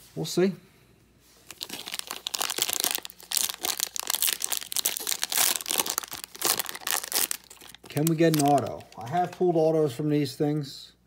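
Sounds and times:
plastic wrapper crinkling and tearing: 0:01.5 - 0:09.2.

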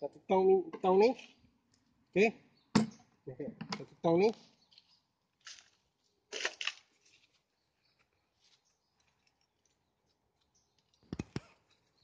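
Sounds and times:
sharp knock: 0:02.8 - 0:03.0.

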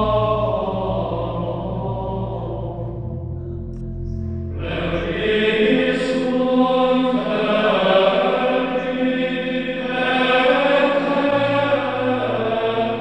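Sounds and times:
choir chanting sustained notes: 0:00.0 - 0:13.0.

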